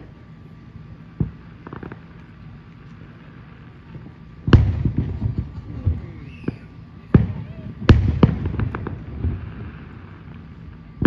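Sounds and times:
firework crackling: 0.0s - 11.0s
firework shells bursting: 1.1s - 11.0s
loud firework bang: 4.5s - 10.0s.

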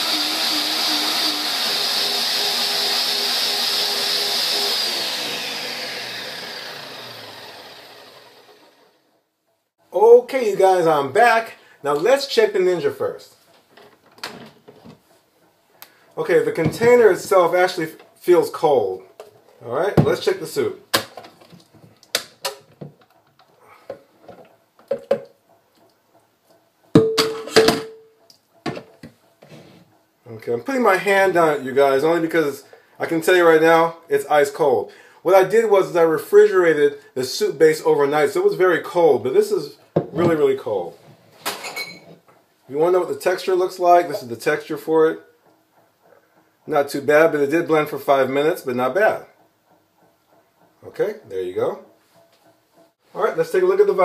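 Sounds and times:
blender motor winding down: 0.0s - 9.0s
blenders running: 0.0s - 9.0s.

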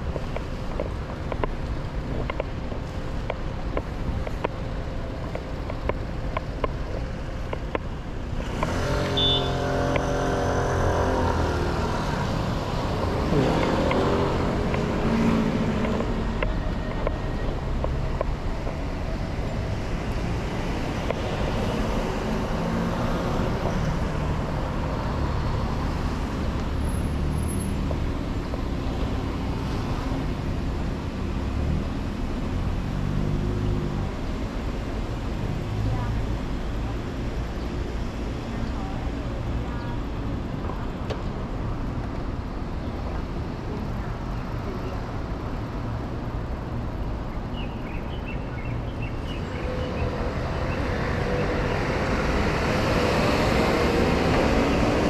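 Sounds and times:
traffic rumble: 0.0s - 55.0s
loud engine passing: 8.5s - 16.4s, 50.2s - 55.0s.

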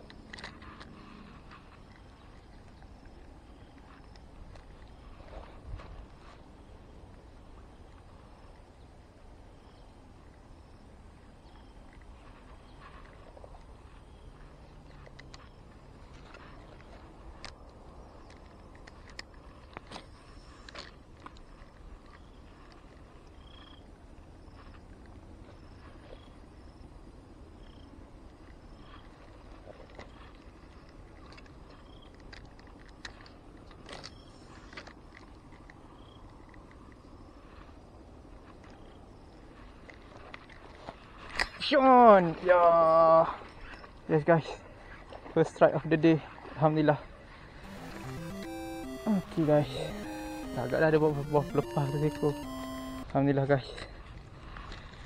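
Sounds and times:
fishing reel clicks and rustles: 29.8s - 37.0s
short high chirps: 47.7s - 53.0s.

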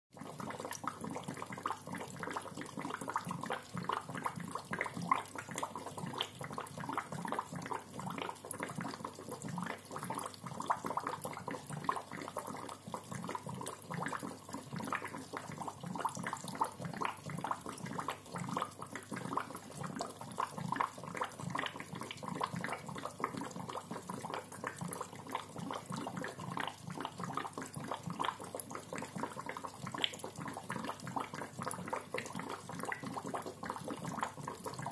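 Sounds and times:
aquarium bubbler gurgling: 0.1s - 34.9s.

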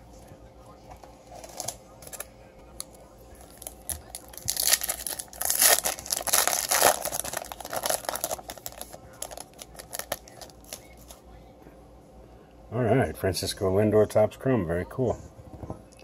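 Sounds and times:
foil wrapper crinkling and tearing: 1.3s - 11.2s.

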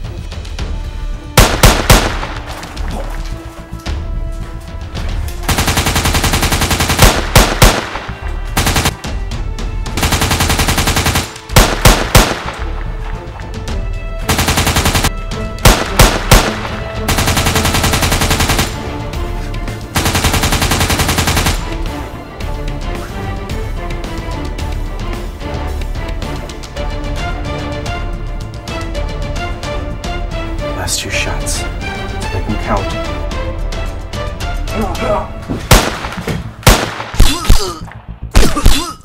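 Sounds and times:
background music: 0.0s - 39.0s
automatic gunfire bursts: 1.4s - 2.4s, 5.5s - 9.0s, 10.0s - 12.6s, 14.3s - 18.8s, 20.0s - 21.6s, 35.7s - 37.3s
single gunshots: 1.4s - 2.7s, 6.9s - 8.2s, 11.6s - 12.8s, 15.6s - 17.4s, 35.7s - 37.6s.

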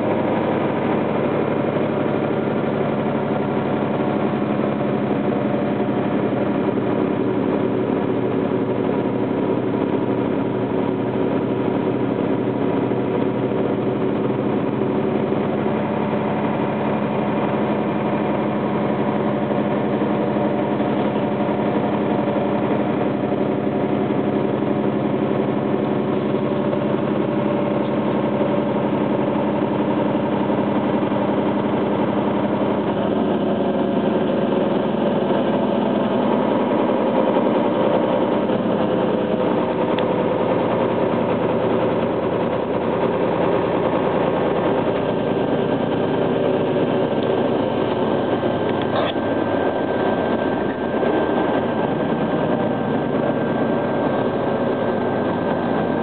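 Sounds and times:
bus engine hum: 0.0s - 56.0s
road and tyre noise: 0.0s - 56.0s.

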